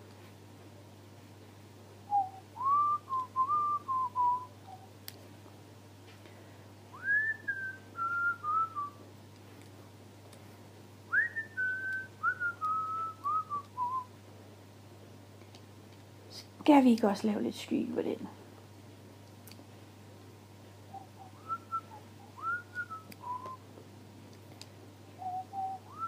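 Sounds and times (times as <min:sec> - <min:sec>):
person whistling a tune: 0:02.1 - 0:04.9, 0:07.0 - 0:09.0, 0:11.1 - 0:14.1, 0:20.9 - 0:23.6, 0:25.2 - 0:26.0.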